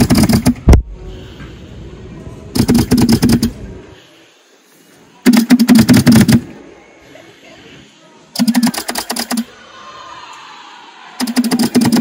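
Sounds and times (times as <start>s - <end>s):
dive compressor rattling: 0.0s - 0.7s.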